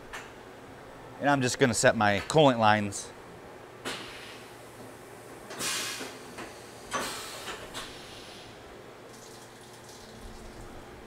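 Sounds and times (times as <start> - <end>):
hissing air burst: 5.5 - 8.5.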